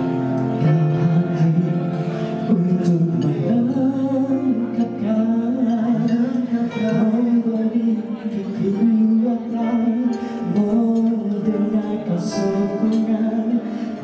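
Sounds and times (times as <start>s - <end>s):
instrumental accompaniment: 0.0s - 14.0s
man singing pop song: 0.0s - 14.0s.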